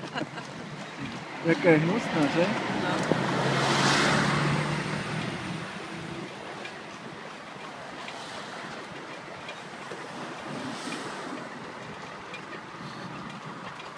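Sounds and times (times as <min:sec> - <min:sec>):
rushing wind: 0:00.0 - 0:13.9
faint irregular clicks: 0:05.2 - 0:13.9.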